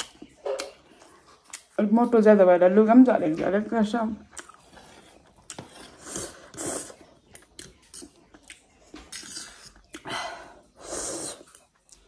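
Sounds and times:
chewing: 0.0s - 1.8s, 4.2s - 12.0s.

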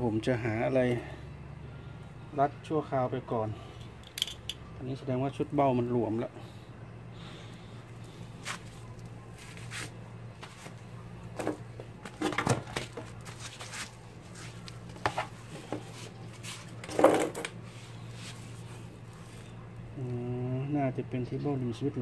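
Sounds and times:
steady low hum: 0.0s - 22.0s
hard objects knocking and clattering: 16.8s - 17.5s.

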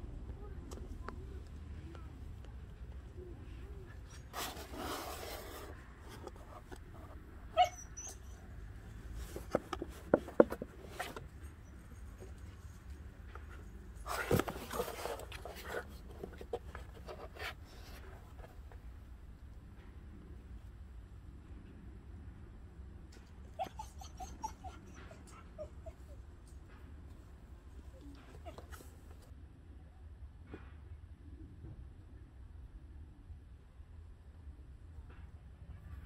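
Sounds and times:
cardboard boxes rustling and bumping: 4.4s - 7.0s, 9.0s - 11.4s, 14.0s - 18.1s.

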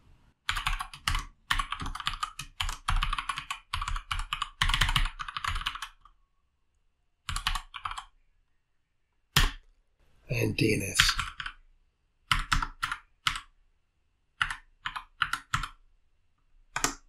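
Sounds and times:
typing on computer keyboard: 0.4s - 6.2s, 7.2s - 8.1s, 11.0s - 11.6s, 12.2s - 13.6s, 14.4s - 15.8s, 16.7s - 17.0s.

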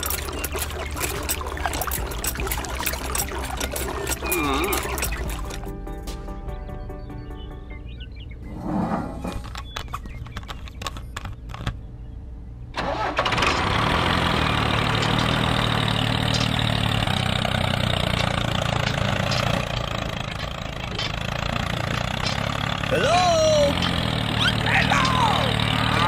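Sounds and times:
engine starting and running: 0.0s - 6.3s, 12.6s - 26.0s.

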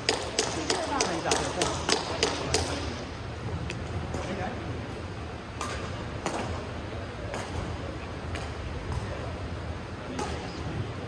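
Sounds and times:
rackets striking shuttlecock: 0.0s - 3.0s, 5.5s - 9.2s, 10.1s - 10.6s
people talking: 10.0s - 11.0s.

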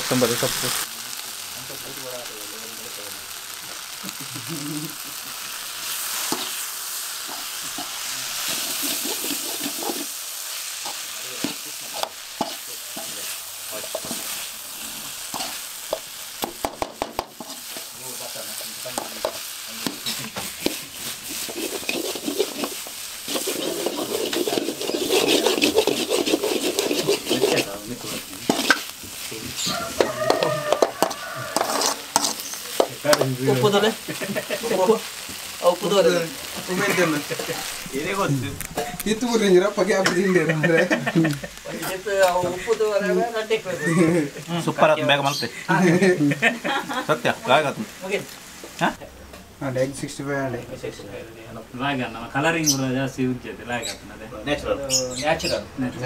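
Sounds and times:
food sizzling in pan: 0.0s - 56.0s
metal ladle scraping pan: 5.8s - 16.0s, 19.0s - 33.3s.

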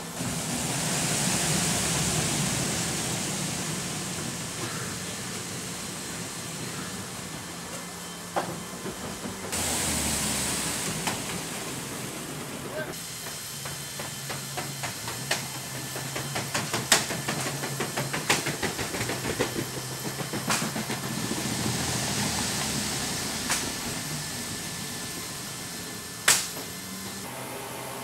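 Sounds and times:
hiss: 0.0s - 27.3s
loud sharp metal clack: 26.2s - 26.7s.

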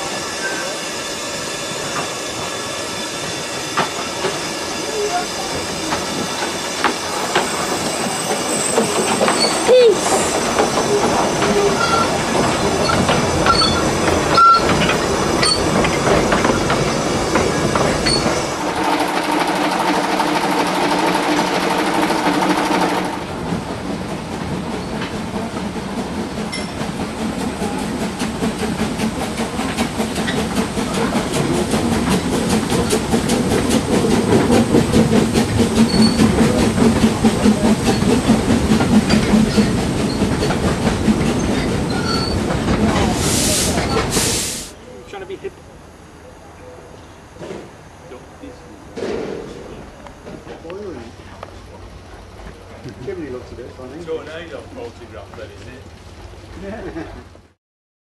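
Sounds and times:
train wheels clicking over rail joints: 1.8s - 44.5s.

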